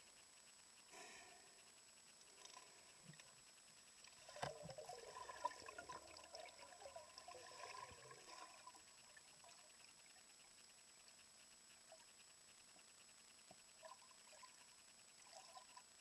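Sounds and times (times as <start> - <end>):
small clicks: 1.6 - 4.8
aquarium water trickling and bubbling: 4.0 - 10.5, 13.7 - 16.0.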